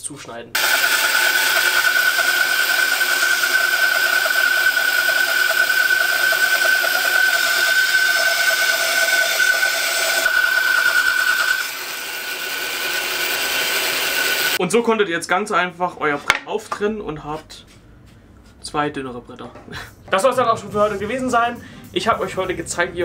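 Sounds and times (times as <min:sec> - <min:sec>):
bandsaw cutting wood: 0:00.6 - 0:14.6.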